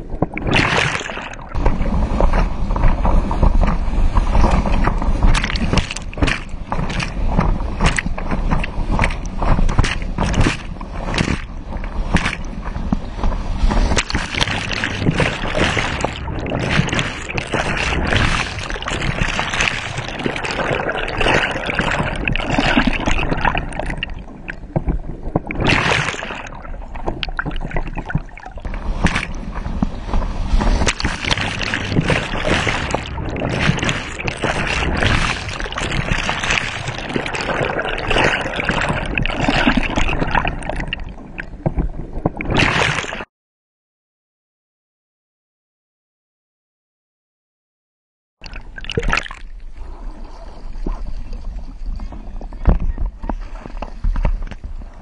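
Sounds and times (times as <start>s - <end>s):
muffled underwater gurgling: 0.0s - 43.2s
water rushing and splashing: 0.0s - 43.3s, 48.4s - 54.5s.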